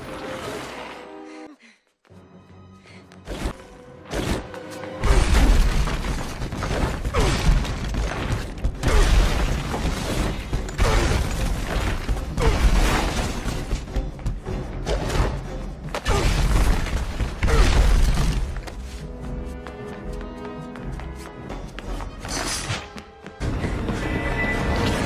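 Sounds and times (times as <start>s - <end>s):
heavy crashes and falling rubble: 5.2s - 13.9s
orchestral score: 17.1s - 25.0s.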